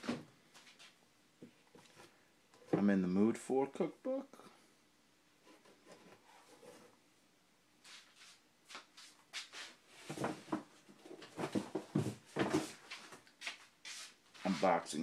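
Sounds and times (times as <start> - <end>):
book knocking and bumping in box: 10.1 - 12.8.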